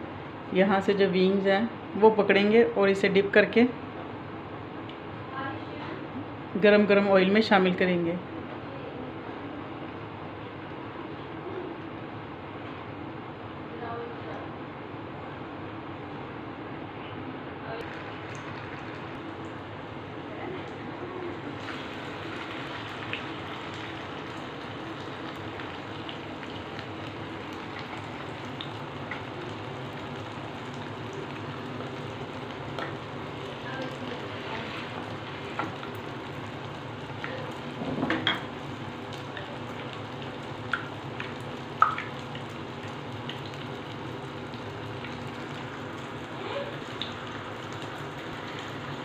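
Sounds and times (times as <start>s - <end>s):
food sizzling in hot oil: 20.8s - 49.0s.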